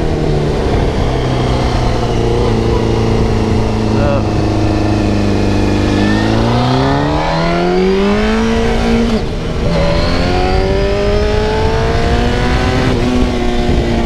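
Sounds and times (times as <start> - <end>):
motorcycle engine revving: 0.0 - 14.0
wind rushing: 0.0 - 14.0.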